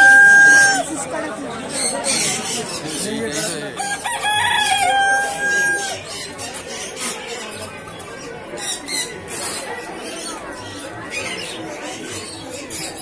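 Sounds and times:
rooster crowing: 0:00.0 - 0:00.8, 0:03.8 - 0:06.0
crowd chatter: 0:00.0 - 0:13.0.

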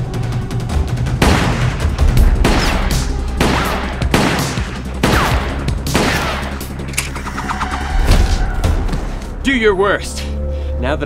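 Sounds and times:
gunshots: 0:01.2 - 0:08.5
whistling ricochet: 0:07.1 - 0:08.6.

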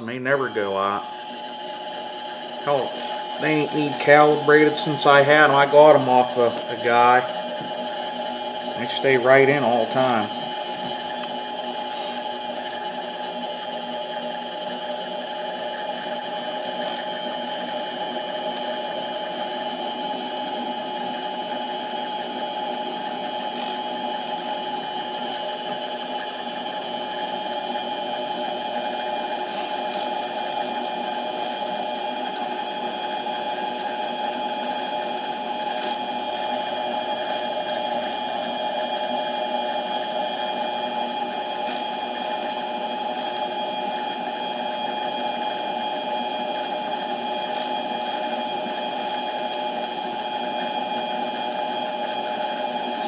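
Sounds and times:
lathe motor whining: 0:00.0 - 0:53.0.

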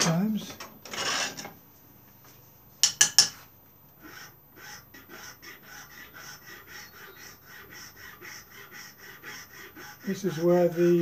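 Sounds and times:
hand file rubbing on wood: 0:04.0 - 0:11.0.

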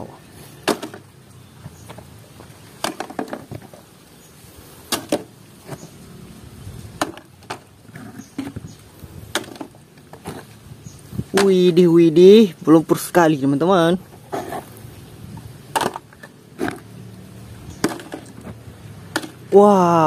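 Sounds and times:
plastic toys clacking: 0:15.7 - 0:16.8.

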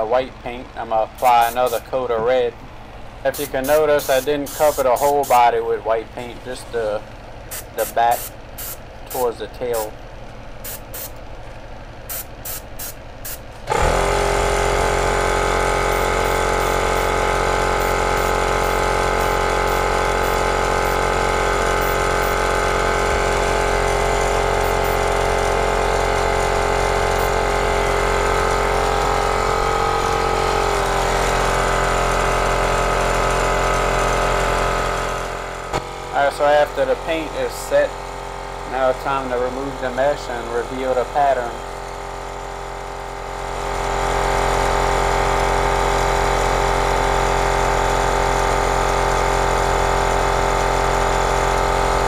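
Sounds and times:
hot-air dryer blowing with motor whine: 0:13.7 - 0:36.1, 0:41.7 - 0:52.0.

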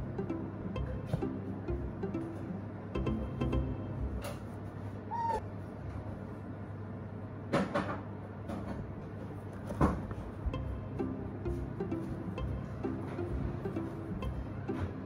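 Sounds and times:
otter squeak: 0:05.1 - 0:05.4.

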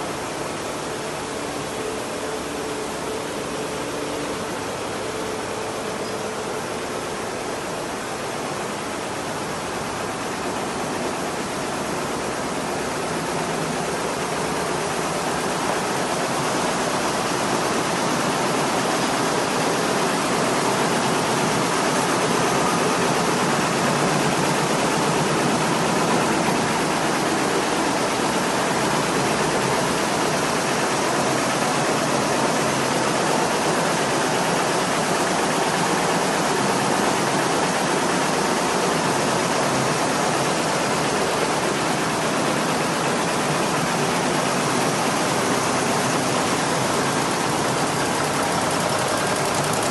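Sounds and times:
quilting machines running: 0:00.0 - 0:49.9.

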